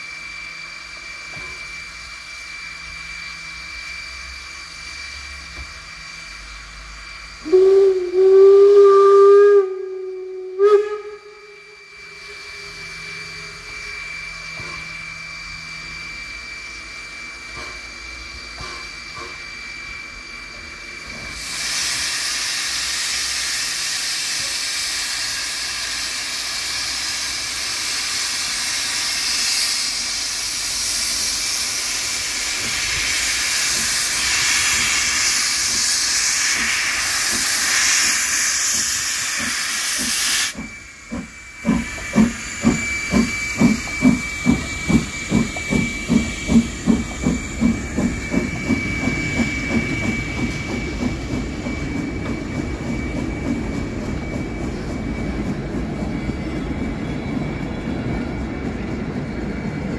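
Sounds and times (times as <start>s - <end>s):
steam hissing: 0.0s - 59.9s
steam whistle blasts: 6.4s - 14.9s, 21.3s - 50.5s.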